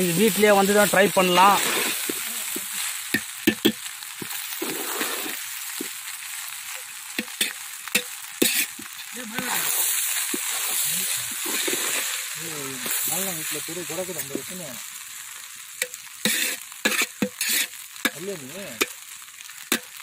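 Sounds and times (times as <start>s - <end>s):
sizzling hiss: 0.0s - 20.0s
spoon scraping rice in pot: 7.2s - 8.9s, 16.2s - 17.8s.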